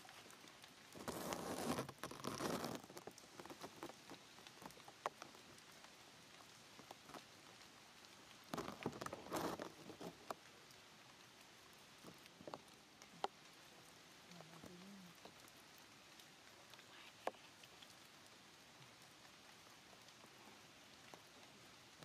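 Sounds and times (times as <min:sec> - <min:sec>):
faint rustling: 0:00.0 - 0:05.6, 0:08.5 - 0:10.7
light ticks: 0:00.0 - 0:22.0.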